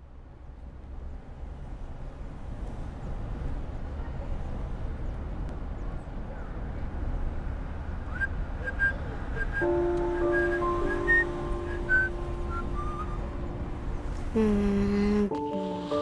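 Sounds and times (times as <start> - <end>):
high flute-like notes: 9.5 - 13.6.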